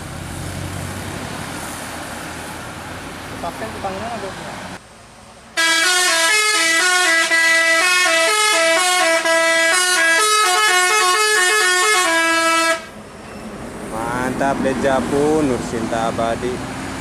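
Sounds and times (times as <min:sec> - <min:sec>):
bus horn playing a melody: 0:05.6 - 0:13.0.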